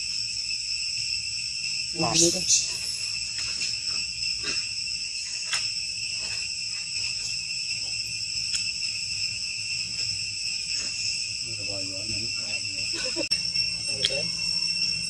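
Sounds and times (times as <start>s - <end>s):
forest insects droning: 0.0s - 15.0s.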